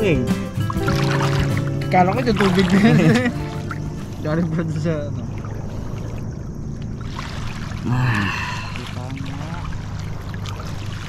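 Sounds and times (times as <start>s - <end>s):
water sloshing around waders: 0.0s - 11.0s.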